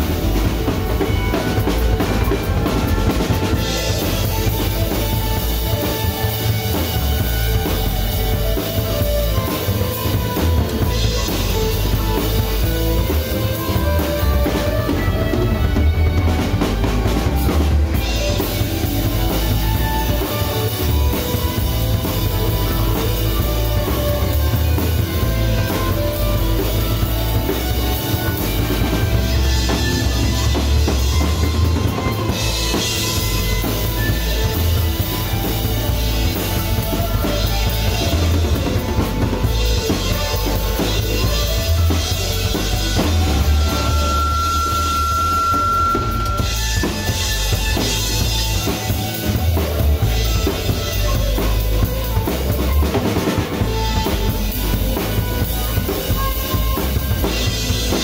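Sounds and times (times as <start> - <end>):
drum kit beat: 0.0 - 58.0
rock band playing: 0.0 - 58.0
held high note: 41.6 - 48.6.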